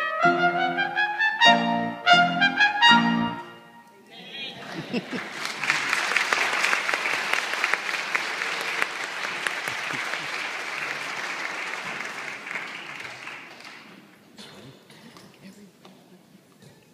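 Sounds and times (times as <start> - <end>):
audience applauding: 4.6 - 14.2.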